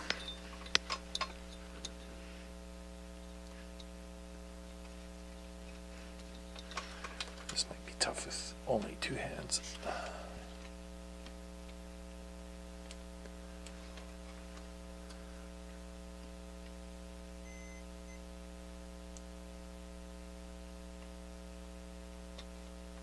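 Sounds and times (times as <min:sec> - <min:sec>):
electrical mains hum: 0:00.0 - 0:23.0
faint ticks: 0:03.3 - 0:04.0.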